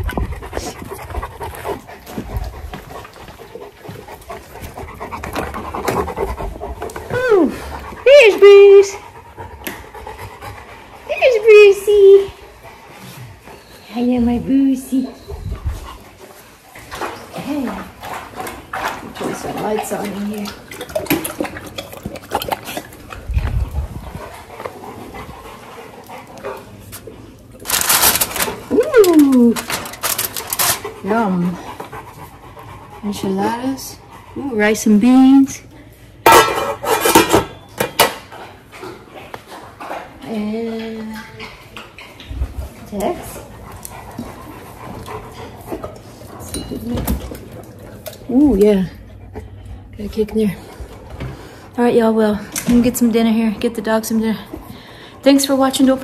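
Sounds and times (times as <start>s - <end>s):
dog low rumble: 0.0s - 10.1s, 22.4s - 25.7s
dog panting: 0.0s - 28.7s, 29.6s - 35.7s, 38.2s - 56.0s
rustling: 27.6s - 30.9s
dog claws clicking and scuffling: 27.6s - 31.1s.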